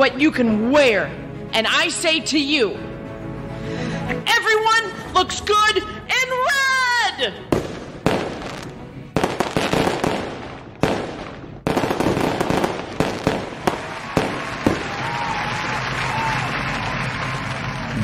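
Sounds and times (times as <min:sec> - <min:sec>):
fireworks crackling pops: 0:07.5 - 0:15.2
fireworks bangs: 0:07.5 - 0:15.3.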